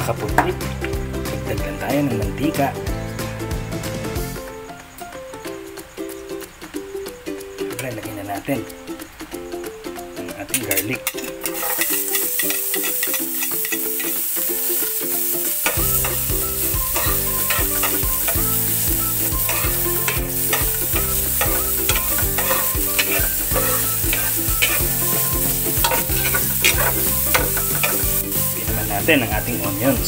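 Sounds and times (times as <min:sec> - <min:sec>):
background music: 0:00.0 - 0:30.0
garlic sizzling in hot oil: 0:08.6 - 0:30.0
metal spatula scraping pan: 0:10.6 - 0:14.4, 0:15.6 - 0:18.5, 0:19.3 - 0:28.4.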